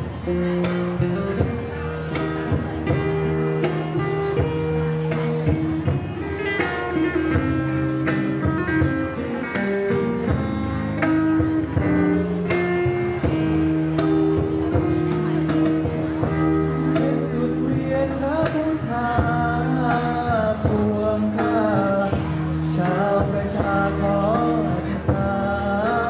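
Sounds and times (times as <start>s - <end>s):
acoustic guitar: 0.0s - 26.0s
man singing: 15.6s - 26.0s.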